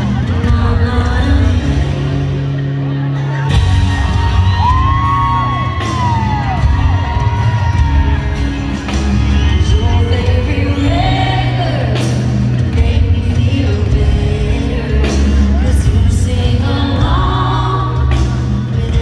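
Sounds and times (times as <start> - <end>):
person singing: 0.0 - 7.6, 9.2 - 19.0
live country band playing: 0.0 - 19.0
crowd whooping: 2.9 - 10.0.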